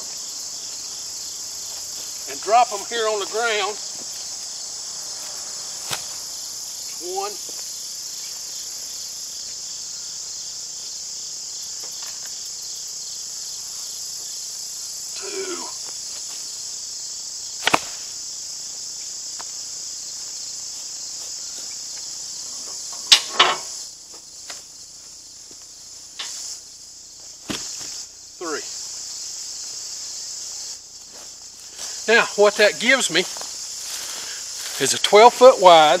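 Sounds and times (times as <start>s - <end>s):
crickets trilling: 0.0s - 36.0s.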